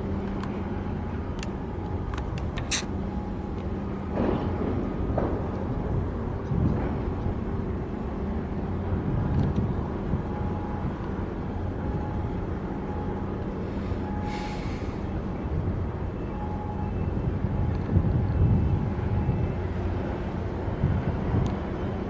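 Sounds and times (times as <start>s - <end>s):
ship engine rumble: 0.0s - 22.0s
brief hiss: 13.8s - 15.0s.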